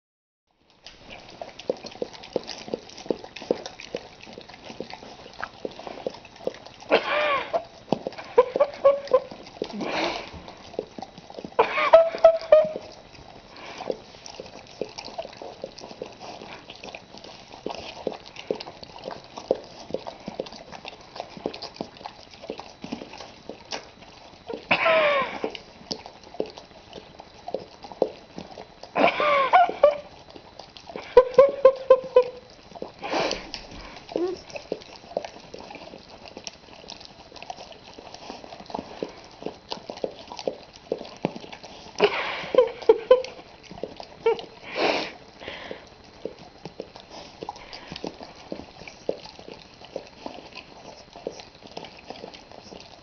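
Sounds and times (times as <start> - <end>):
dogs licking and lapping: 0.6 - 53.0
dog vocal sounds wavering in pitch: 8.1 - 10.1, 34.0 - 37.7.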